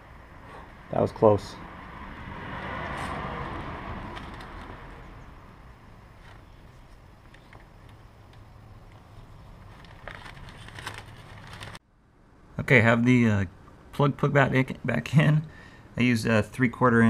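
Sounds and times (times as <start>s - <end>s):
plastic bag crinkling: 9.6s - 11.8s.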